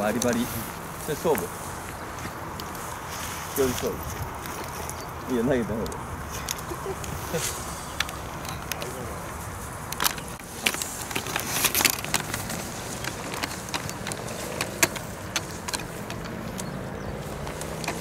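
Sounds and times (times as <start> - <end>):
sharp clicks and ticks: 4.2 - 7.2, 7.8 - 18.0.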